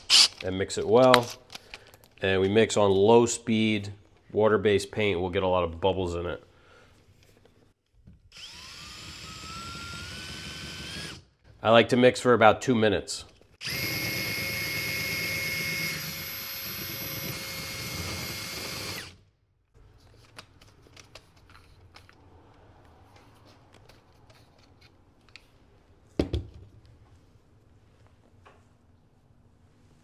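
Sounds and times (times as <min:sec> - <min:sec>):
cordless drill whine: 0:00.1 - 0:00.4, 0:08.4 - 0:11.2, 0:13.6 - 0:19.2.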